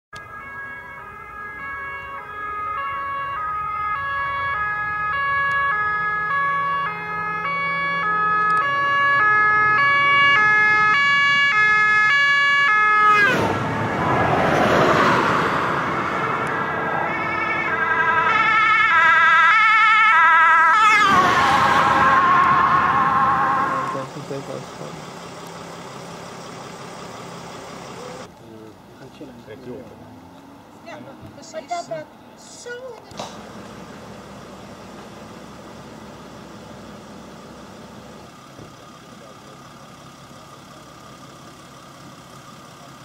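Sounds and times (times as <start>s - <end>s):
two-tone emergency siren: 0.2s - 24.1s
vehicle passing by: 1.6s - 19.8s, 29.0s - 32.3s.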